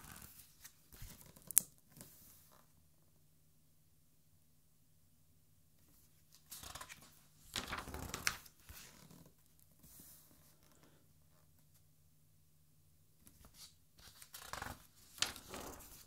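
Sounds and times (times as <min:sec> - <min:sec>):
page turning rustle: 0:00.1 - 0:02.4, 0:06.3 - 0:09.1, 0:13.3 - 0:16.0
page slapping down: 0:06.5 - 0:08.9.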